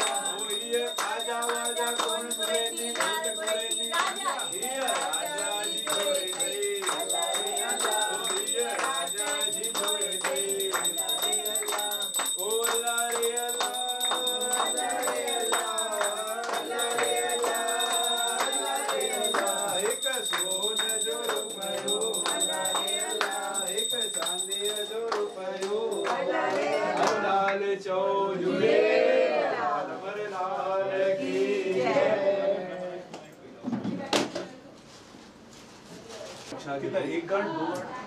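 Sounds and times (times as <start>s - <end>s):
jingling percussion: 0.0s - 26.8s.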